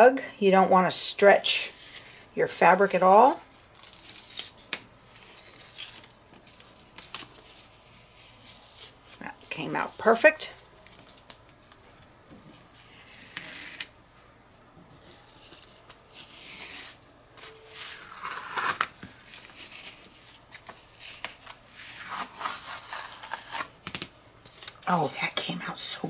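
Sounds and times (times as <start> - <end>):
fabric peeled off sticky mat: 15.3 - 20.0.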